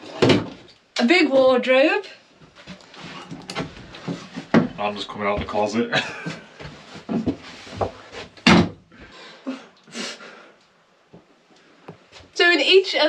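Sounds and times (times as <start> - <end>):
wooden wardrobe door clattering: 0.0 - 0.6, 3.4 - 4.8, 8.4 - 8.8.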